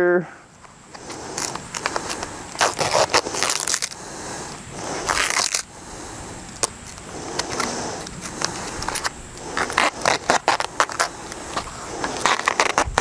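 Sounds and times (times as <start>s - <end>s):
handling clicks and scrapes: 0.6s - 4.0s, 6.5s - 13.0s
duct tape pulled off roll: 0.9s - 4.0s, 4.9s - 5.7s, 6.6s - 13.0s.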